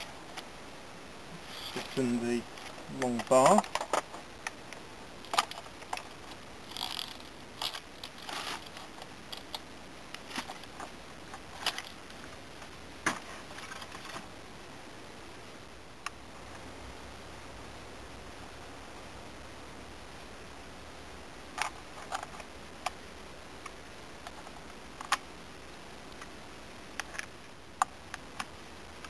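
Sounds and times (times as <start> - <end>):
chainsaw chain clicking and rattling: 6.7 - 9.6.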